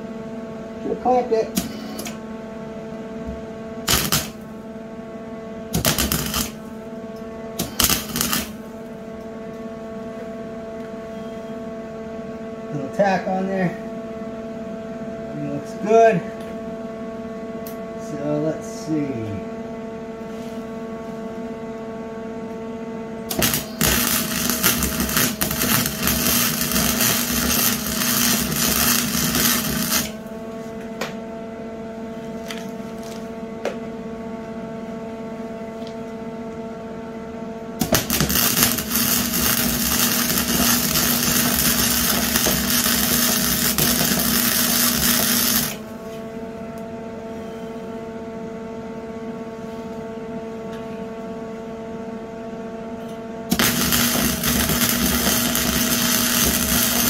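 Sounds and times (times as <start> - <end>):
steady welder hum: 0.0 - 10.8, 22.8 - 33.3, 37.0 - 47.0, 53.0 - 57.0
welding arc crackling: 3.8 - 4.5, 5.7 - 6.7, 7.6 - 8.7, 23.3 - 30.3, 37.8 - 45.8, 53.5 - 57.0.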